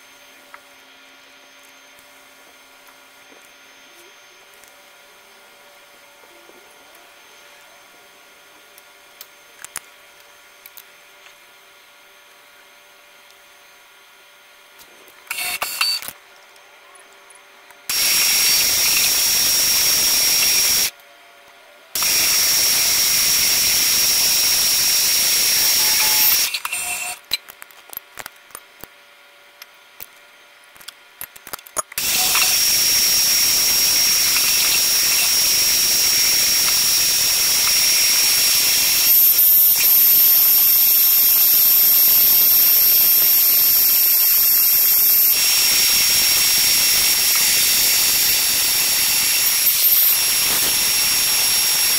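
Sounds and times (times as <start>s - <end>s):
air spray hissing with whistle: 45.2s - 51.9s.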